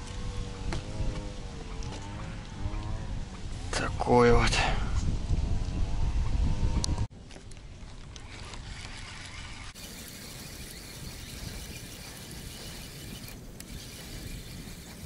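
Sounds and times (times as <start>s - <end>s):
fishing reel whirring: 8.0s - 15.0s.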